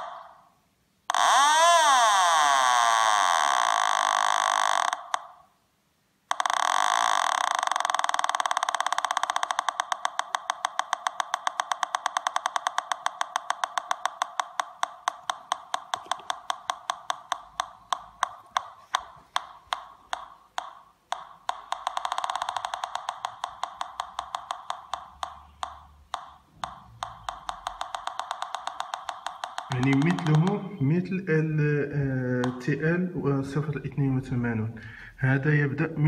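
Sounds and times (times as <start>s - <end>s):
metal detector ticking: 6.3s - 31.0s.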